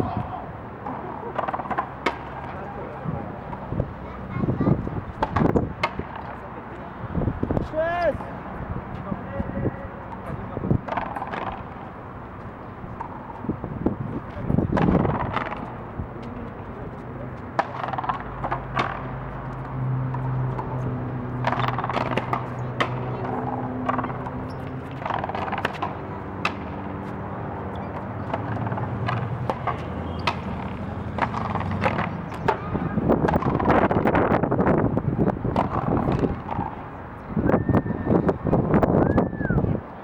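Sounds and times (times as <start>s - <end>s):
ball struck by rackets: 1.3s - 2.9s, 5.1s - 6.4s, 10.1s - 11.9s, 13.0s - 13.4s, 14.7s - 16.4s, 17.5s - 26.9s, 27.8s - 34.2s, 35.4s - 36.8s.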